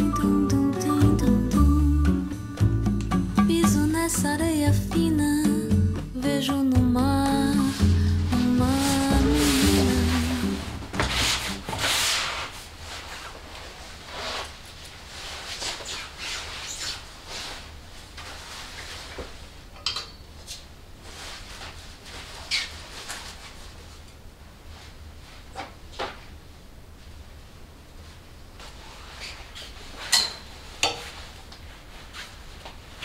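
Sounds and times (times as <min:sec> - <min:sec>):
fabric rustling: 0:07.4 - 0:19.6, 0:20.4 - 0:25.6, 0:26.2 - 0:33.0.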